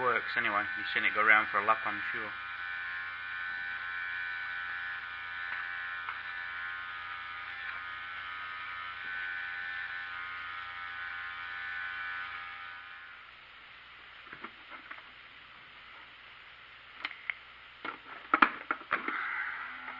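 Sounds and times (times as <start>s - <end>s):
small gear motor whining: 0.0s - 13.2s, 19.0s - 19.9s.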